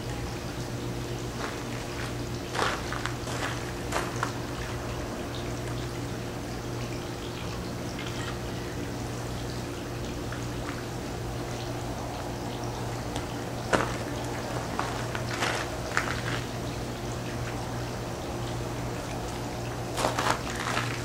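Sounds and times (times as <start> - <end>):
low hum: 0.0 - 21.0
faint clicks and rustles: 13.2 - 16.7, 19.9 - 21.0.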